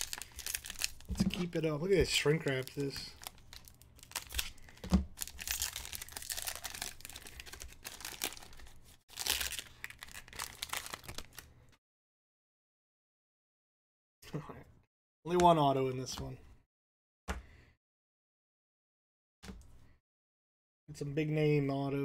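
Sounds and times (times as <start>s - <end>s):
foil wrapper crinkling and tearing: 0.0s - 11.5s.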